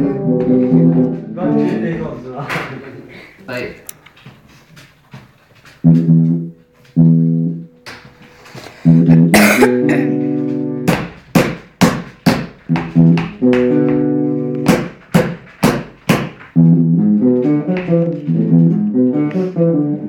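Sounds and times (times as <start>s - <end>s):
guitar chords strummed: 0.0s - 2.0s, 5.8s - 11.0s, 12.7s - 14.7s, 16.5s - 20.0s.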